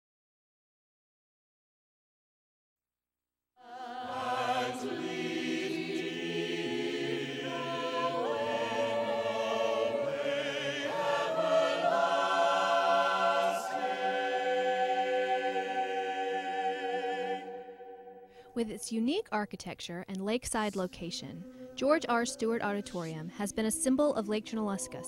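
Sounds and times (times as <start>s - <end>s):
vocal ensemble singing harmony: 3.6s - 18.4s.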